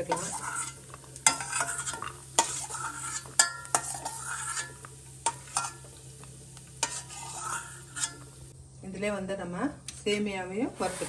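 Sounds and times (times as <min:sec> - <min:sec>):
steel ladle scraping a pan: 0:00.0 - 0:06.2, 0:06.8 - 0:08.5, 0:10.8 - 0:11.0
oil sizzling: 0:00.0 - 0:08.6.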